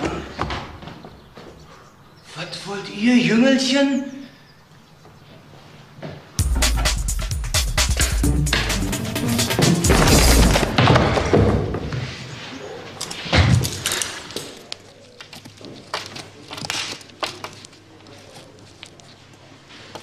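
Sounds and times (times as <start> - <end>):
heavy thuds of blows: 6.4 - 11.9.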